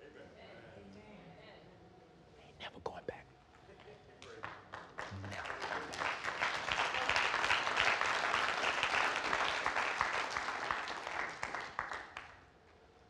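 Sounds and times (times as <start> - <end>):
crowd applauding: 4.3 - 12.4.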